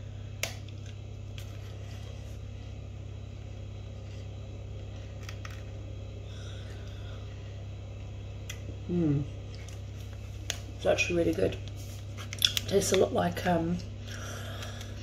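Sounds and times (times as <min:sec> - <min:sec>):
low hum: 0:00.0 - 0:15.0
quiet chewing: 0:09.4 - 0:10.6.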